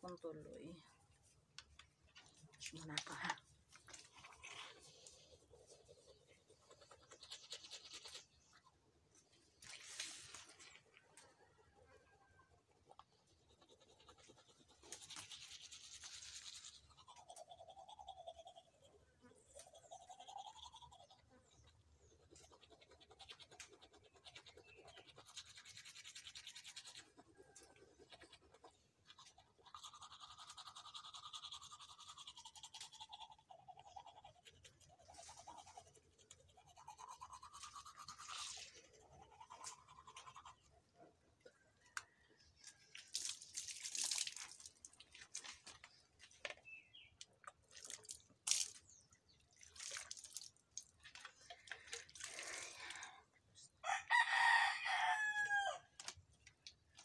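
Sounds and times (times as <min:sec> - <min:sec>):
toothbrush scrubbing teeth: 0:03.7 - 0:08.7, 0:12.8 - 0:40.7.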